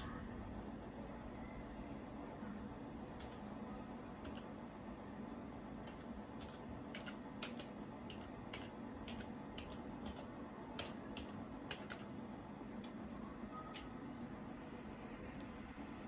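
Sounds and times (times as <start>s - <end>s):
computer keyboard typing: 3.1s - 4.7s, 5.8s - 13.0s, 13.6s - 14.1s.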